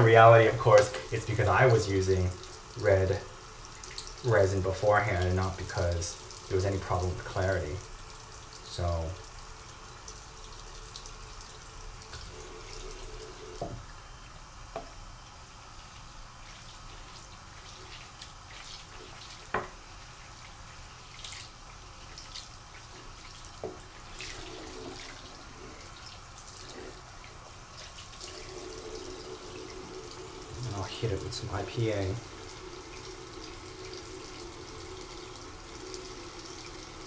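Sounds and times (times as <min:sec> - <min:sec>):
faucet running into a sink: 0:00.0 - 0:14.0, 0:15.8 - 0:37.0.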